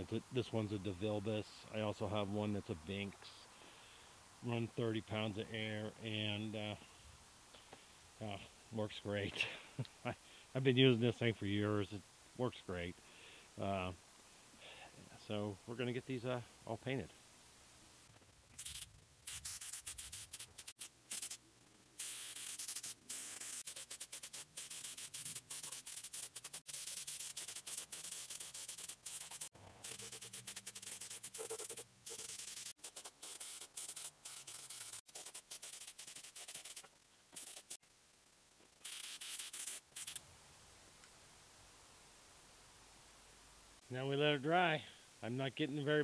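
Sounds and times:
spray gun hissing: 0:18.6 - 0:21.4, 0:22.0 - 0:37.8, 0:38.8 - 0:40.2.

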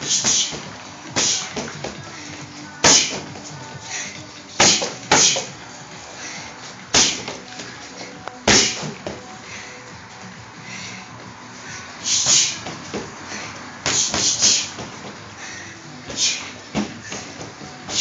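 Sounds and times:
punches smacking a punching bag: 0:00.0 - 0:02.1, 0:02.8 - 0:03.5, 0:04.6 - 0:05.6, 0:06.9 - 0:07.4, 0:08.4 - 0:09.2, 0:12.1 - 0:13.1, 0:13.8 - 0:15.2, 0:16.1 - 0:18.0.

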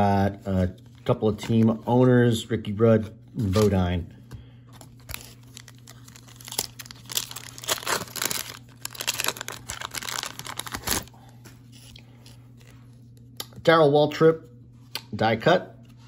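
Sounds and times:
wrapper tearing and crinkling: 0:05.0 - 0:11.1.

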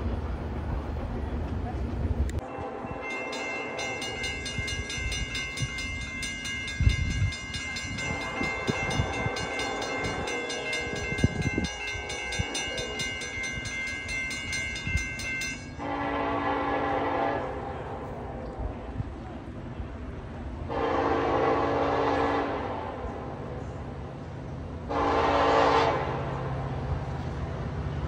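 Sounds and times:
locomotive horn: 0:02.4 - 0:04.6, 0:07.9 - 0:13.4, 0:15.7 - 0:18.7, 0:20.7 - 0:23.6, 0:24.9 - 0:26.5
crossing warning bell ringing: 0:02.4 - 0:17.1.

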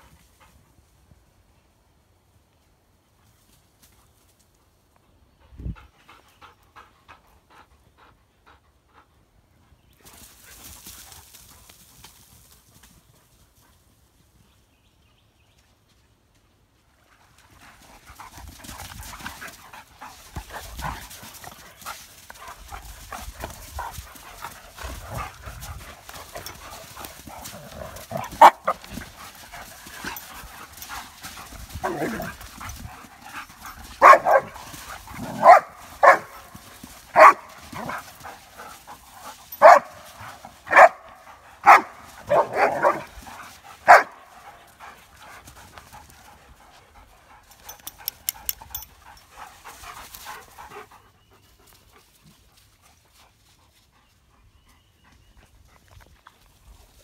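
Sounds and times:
paws scuffling in sand: 0:09.9 - 0:14.6, 0:17.0 - 0:57.0
dogs play barking: 0:18.1 - 0:50.9.

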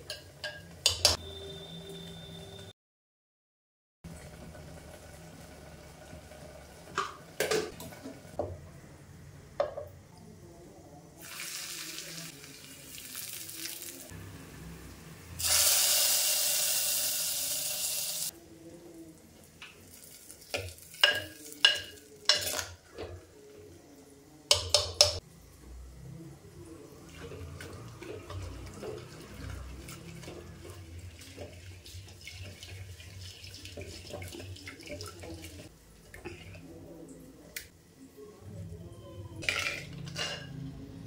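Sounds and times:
oil sizzling: 0:11.2 - 0:18.3, 0:27.0 - 0:36.2
spoon knocking on clay pot: 0:24.5 - 0:25.2.

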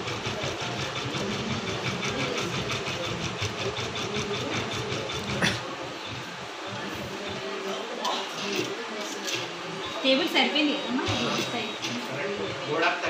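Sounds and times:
embroidery machine stitching: 0:00.0 - 0:06.4.

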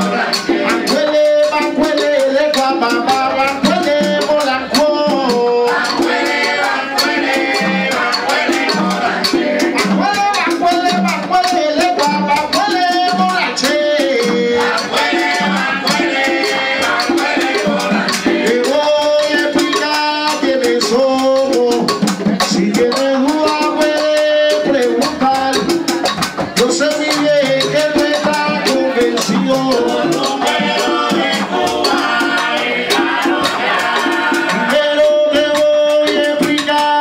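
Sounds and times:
hand drums: 0:00.0 - 0:37.0
shaker rhythm: 0:00.0 - 0:37.0
voices singing together: 0:00.0 - 0:37.0.

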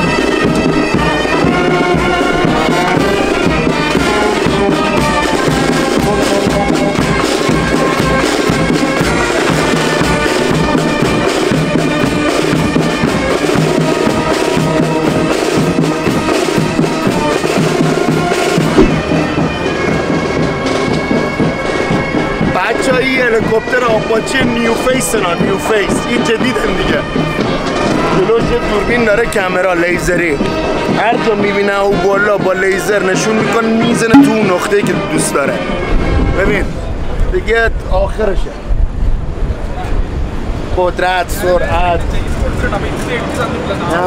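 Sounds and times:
steady drum beat: 0:00.0 - 0:21.5, 0:34.2 - 0:34.8
wind instruments playing tune: 0:00.0 - 0:36.8.

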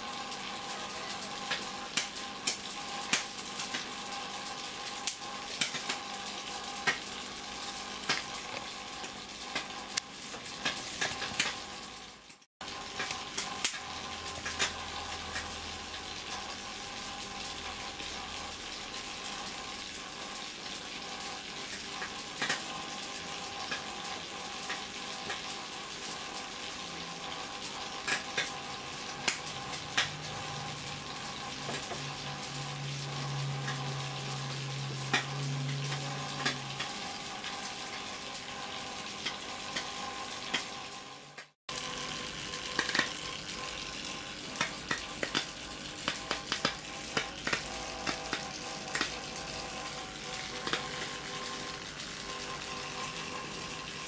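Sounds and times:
electric arcs crackling: 0:00.1 - 0:26.6, 0:27.2 - 0:54.0
sharp electrical snaps: 0:01.5 - 0:03.9, 0:44.5 - 0:49.2.

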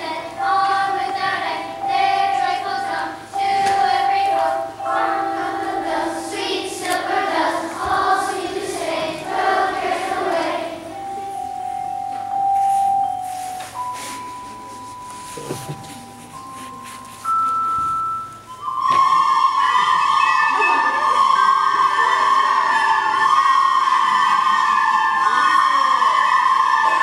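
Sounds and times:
children's choir singing: 0:00.0 - 0:16.8, 0:18.6 - 0:27.0
long single notes: 0:00.0 - 0:17.0.

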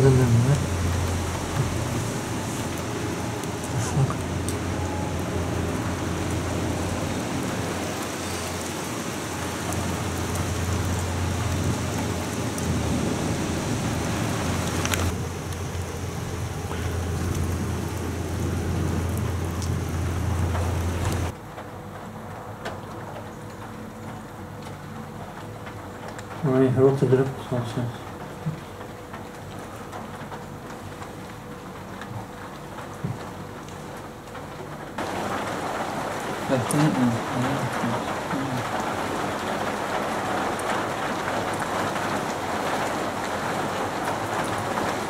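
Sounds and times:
heavy rain: 0:00.0 - 0:45.0
low rumble of thunder: 0:09.3 - 0:21.4.

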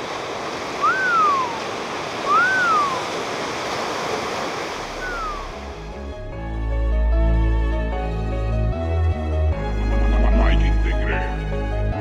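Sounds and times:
ocean surf washing: 0:00.0 - 0:06.1
bird cry: 0:02.3 - 0:03.1, 0:05.0 - 0:05.6.

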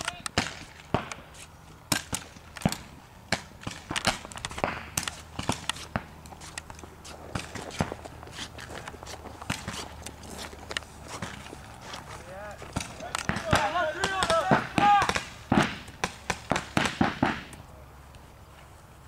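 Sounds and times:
paintball markers firing: 0:00.0 - 0:01.3, 0:01.9 - 0:08.1, 0:12.7 - 0:17.6.

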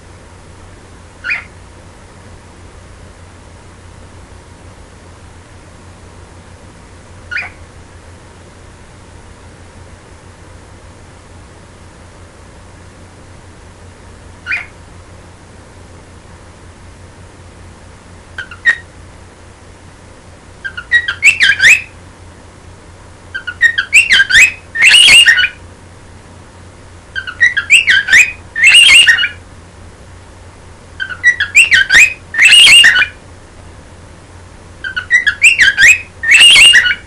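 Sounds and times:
cockatiel chirp: 0:01.2 - 0:01.6, 0:07.3 - 0:07.6, 0:14.4 - 0:14.8, 0:18.4 - 0:18.9, 0:20.6 - 0:22.0, 0:23.3 - 0:25.6, 0:27.2 - 0:29.4, 0:31.0 - 0:33.2, 0:34.8 - 0:37.0
cockatiel whistling phrase: 0:20.7 - 0:21.9, 0:23.4 - 0:25.6, 0:27.2 - 0:29.4, 0:31.0 - 0:33.1, 0:34.9 - 0:37.0.

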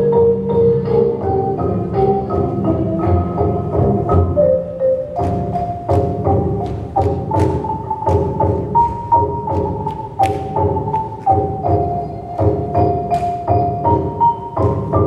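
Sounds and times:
folk dance music: 0:00.0 - 0:15.0
sharp percussion beats: 0:01.4 - 0:15.0.

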